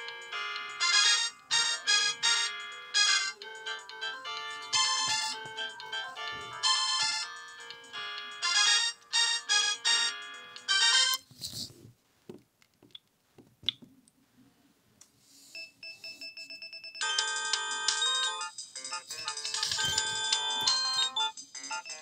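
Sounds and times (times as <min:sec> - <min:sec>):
polyphonic mobile phone ringtones: 0:00.0 - 0:11.2, 0:15.6 - 0:22.0.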